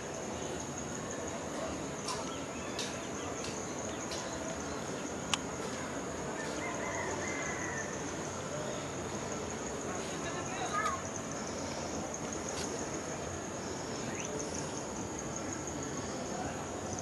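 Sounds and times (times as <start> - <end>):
faint bird chirps: 13.6 - 14.9.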